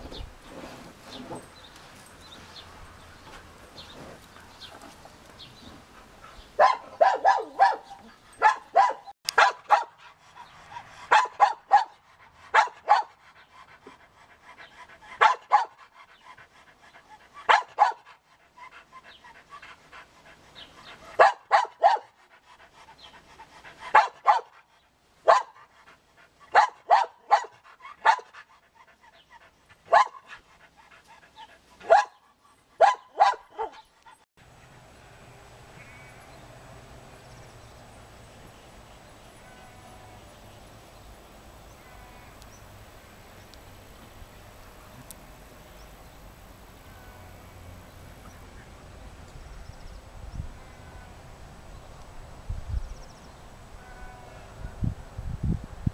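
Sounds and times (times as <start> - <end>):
dog barking: 6.6 - 10.0, 11.1 - 13.2, 15.2 - 15.8, 17.5 - 18.1, 21.2 - 22.2, 23.9 - 24.6, 25.3 - 25.7, 26.5 - 28.3, 29.9 - 30.4, 31.8 - 32.2, 32.8 - 33.8.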